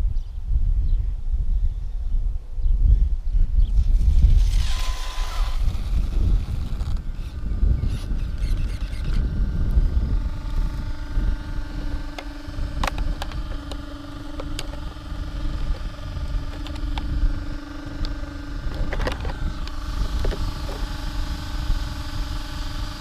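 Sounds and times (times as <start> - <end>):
cooling fans humming: 0.0 - 23.0
plastic shell clicks and rattles: 12.1 - 14.9, 16.5 - 17.1, 18.0 - 20.8.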